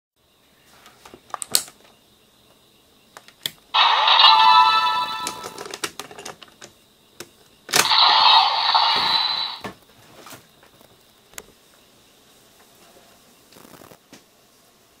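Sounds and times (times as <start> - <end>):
electronic hiss sound effect: 3.8 - 5.4, 7.8 - 9.7.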